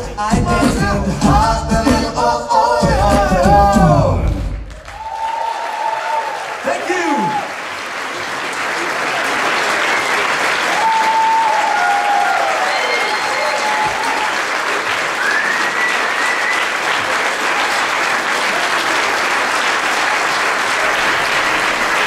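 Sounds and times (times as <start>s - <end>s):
audience applauding: 4.6s - 22.0s
cheers: 4.7s - 22.0s.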